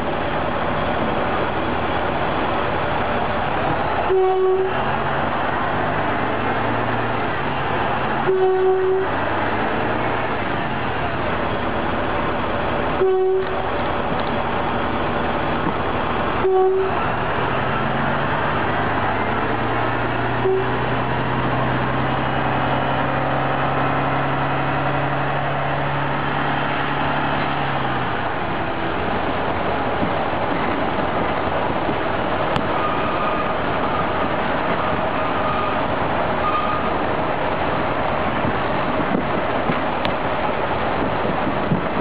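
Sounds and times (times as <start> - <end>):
wheels rumbling on rails: 0.0 - 42.0.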